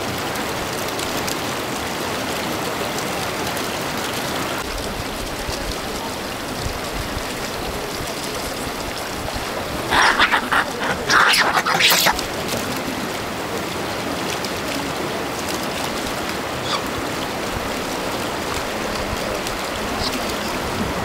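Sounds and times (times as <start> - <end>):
running water rushing: 3.9 - 21.0.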